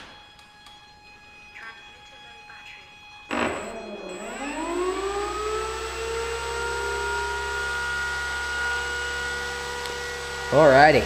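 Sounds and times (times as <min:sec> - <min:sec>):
electric motor whine: 0:03.0 - 0:11.0.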